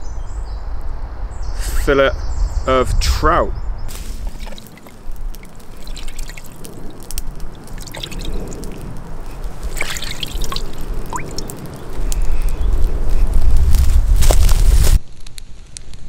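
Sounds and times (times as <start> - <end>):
water splashing and sloshing: 3.9 - 11.7
droplet plinks: 4.2 - 8.8, 9.7 - 11.5.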